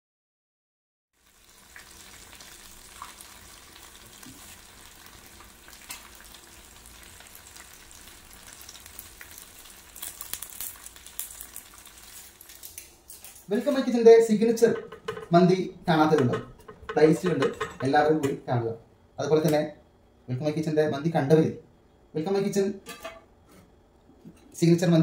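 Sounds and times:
chicken sizzling in a frying pan: 1.2s - 13.3s.

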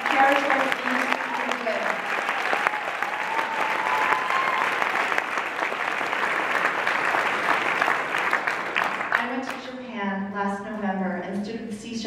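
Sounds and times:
audience applauding: 0.0s - 9.5s.

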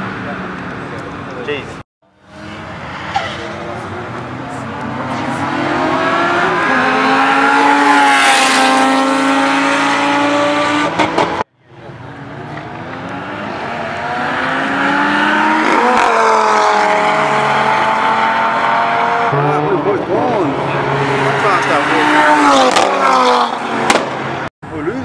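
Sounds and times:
racing car engines passing: 0.0s - 24.5s.

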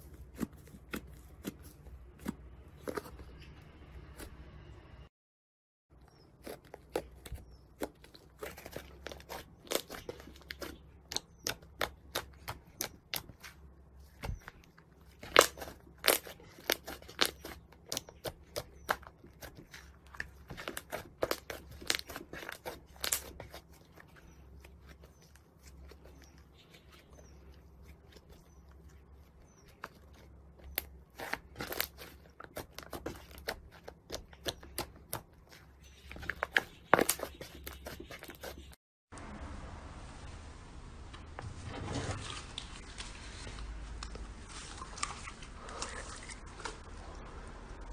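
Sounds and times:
slime popping and crackling: 15.2s - 19.7s.

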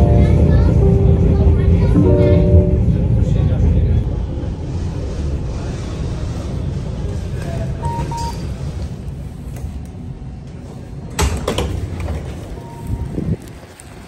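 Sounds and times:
sliding doors clunk and rattle: 10.5s - 12.6s.

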